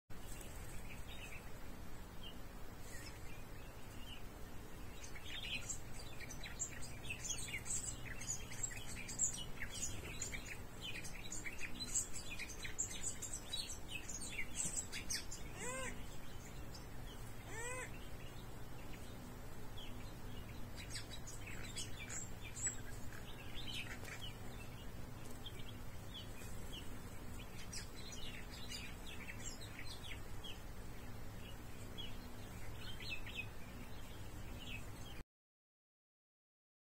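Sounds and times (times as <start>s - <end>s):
low steady hum: 0.1s - 35.2s
small birds chirping: 0.1s - 35.2s
upward-sweeping bird calls: 5.0s - 16.6s, 17.2s - 19.0s.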